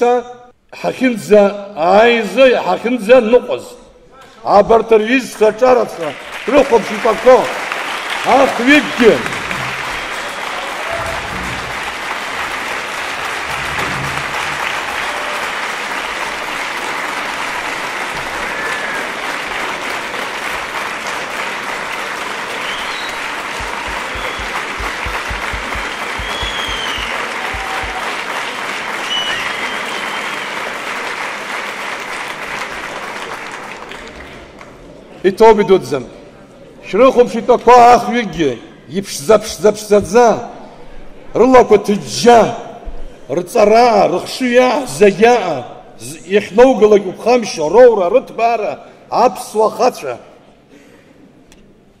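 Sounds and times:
audience applauding: 6.0 - 34.4.

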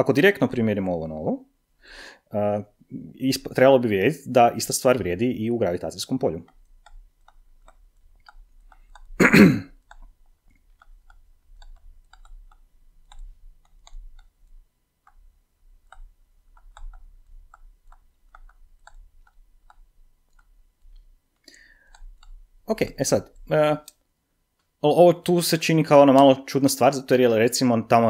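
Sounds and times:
stylus tapping on tablet screen: 6.4 - 24.0
person clearing throat: 9.2 - 9.8.

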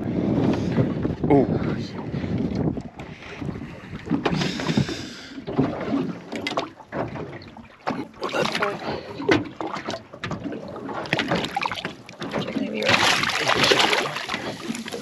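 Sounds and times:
water lapping against boat hull: 0.0 - 15.0
knocks against boat: 3.0 - 14.6.

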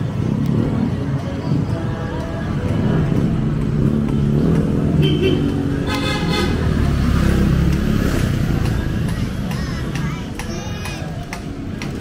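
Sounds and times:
horn toot: 5.0 - 6.8.

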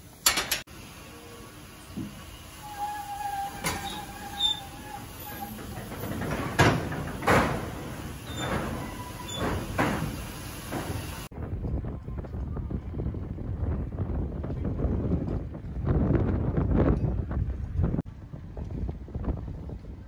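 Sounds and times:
steam engine chuffing: 0.9 - 11.3.

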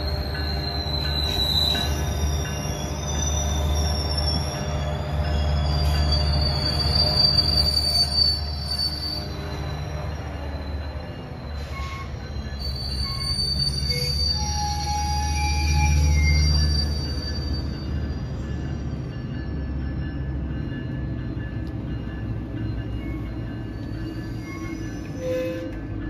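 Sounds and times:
high-pitched wheel squeal: 0.0 - 18.0, 24.0 - 25.9
train wheels rumbling: 0.0 - 26.0.

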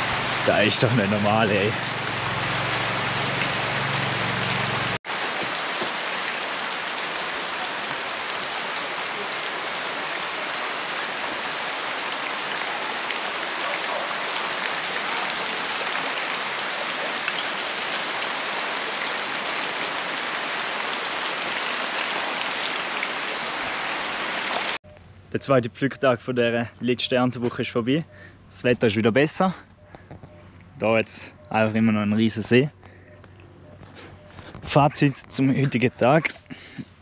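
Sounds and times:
steady rain hiss: 0.0 - 24.8
raindrop ticks: 29.6 - 30.7, 32.8 - 35.5.

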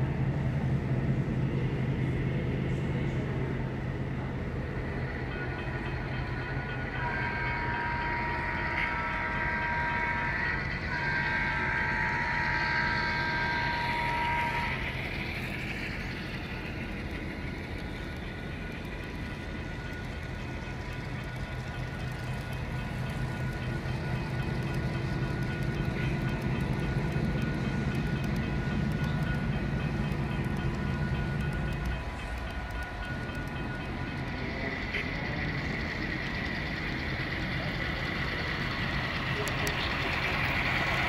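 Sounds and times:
low rumble of running train: 0.0 - 41.0
model train horn: 6.9 - 14.8.

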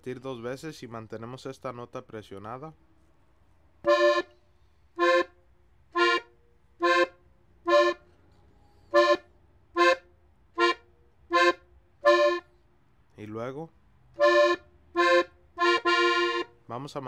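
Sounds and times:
button accordion notes: 3.9 - 4.3, 5.0 - 5.4, 6.0 - 8.0, 8.9 - 12.5, 14.2 - 16.5.

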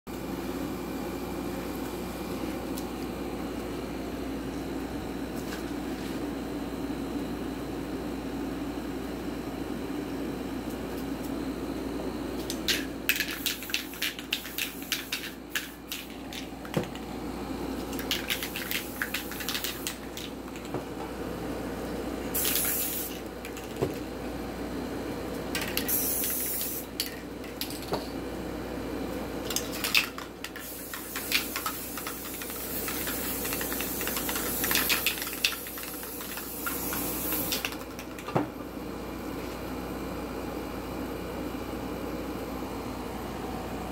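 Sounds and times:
cans clicking and clattering: 12.5 - 17.1, 17.9 - 20.7, 29.5 - 38.4
spray paint can hissing: 12.7 - 16.2, 17.9 - 20.1, 22.4 - 23.2, 25.8 - 26.8, 29.6 - 37.8.

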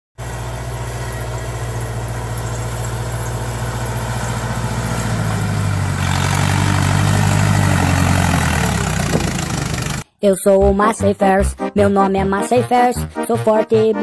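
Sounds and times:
tractor diesel engine under load: 0.2 - 10.0.

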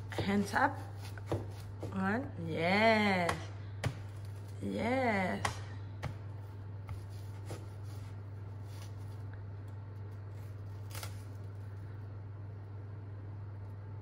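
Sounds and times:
knife cutting onion on board: 0.0 - 2.2, 5.3 - 8.9.

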